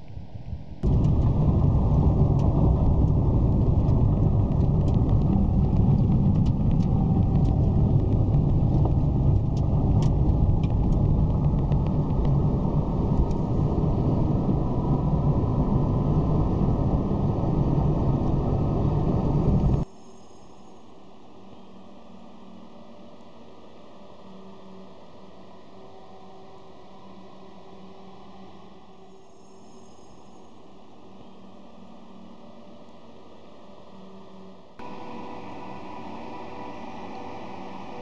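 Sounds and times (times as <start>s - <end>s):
road and engine noise inside car: 0.8s - 19.9s, 34.8s - 38.0s
light ticks: 2.3s - 12.4s.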